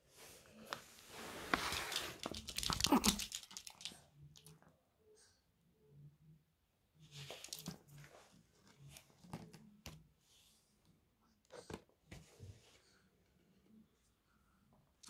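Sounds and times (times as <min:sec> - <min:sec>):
dog claws clicking on floor: 0:01.6 - 0:04.5.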